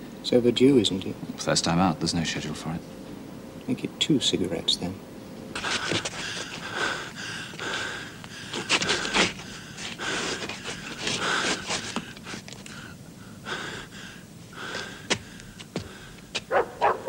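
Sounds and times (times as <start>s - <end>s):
person panting heavily: 5.6s - 16.4s.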